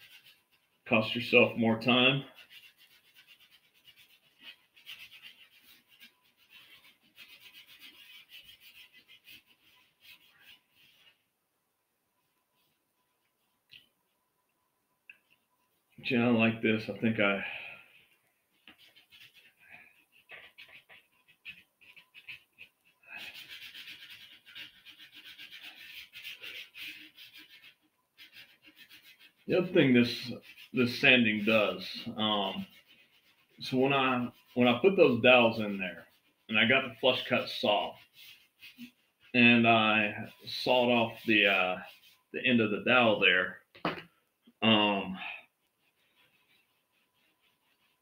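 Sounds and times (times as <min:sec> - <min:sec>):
sandpaper scratching on wood: 0:00.0 - 0:01.6, 0:02.2 - 0:11.1, 0:18.6 - 0:43.2, 0:44.8 - 0:48.0.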